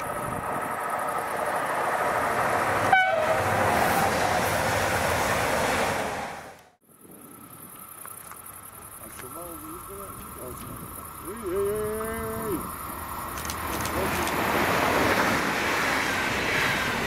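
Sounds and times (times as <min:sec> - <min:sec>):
train passing at speed: 0:00.0 - 0:06.8, 0:12.4 - 0:17.0.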